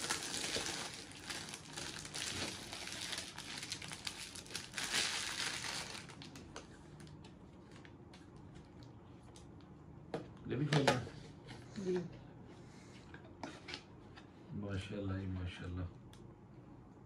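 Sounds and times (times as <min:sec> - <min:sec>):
gift wrapping paper rustling: 0:00.0 - 0:07.9.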